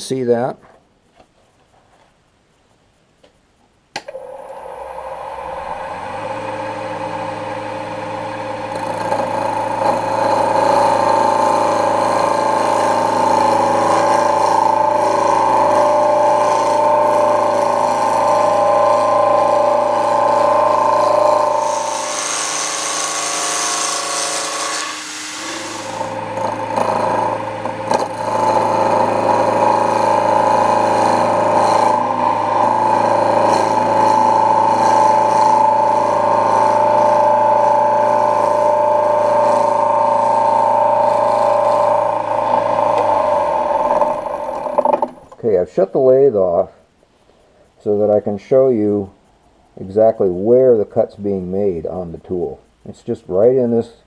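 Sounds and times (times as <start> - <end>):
lathe motor hum: 4.1 - 45.3
gouge cutting spinning wood: 4.2 - 45.3.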